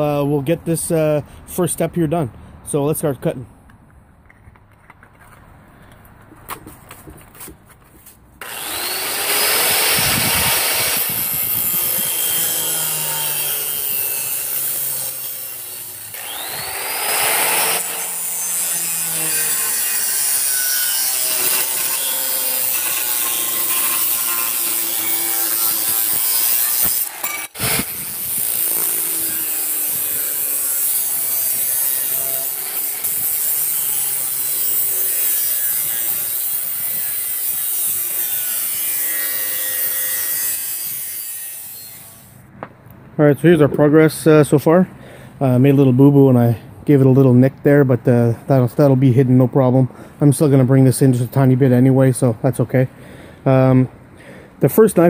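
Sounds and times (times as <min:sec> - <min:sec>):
angle grinder cutting steel: 0:08.4 - 0:42.4.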